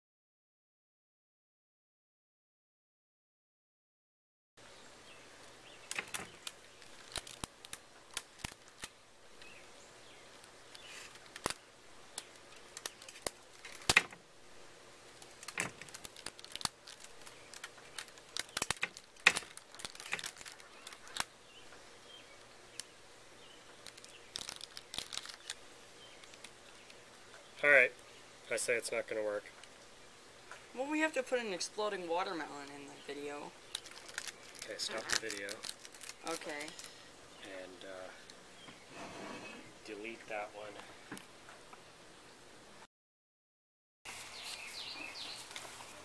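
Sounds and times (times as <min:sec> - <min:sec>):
rubber bands snapping: 0:15.2 - 0:21.3.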